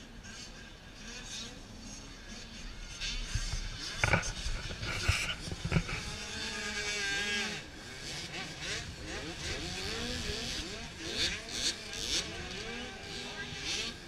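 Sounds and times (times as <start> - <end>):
dirt bike engines revving: 0.0 - 14.0.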